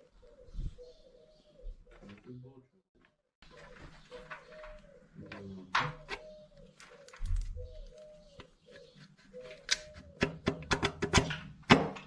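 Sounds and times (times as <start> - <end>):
pigeon cooing: 0.0 - 2.4, 3.4 - 10.5.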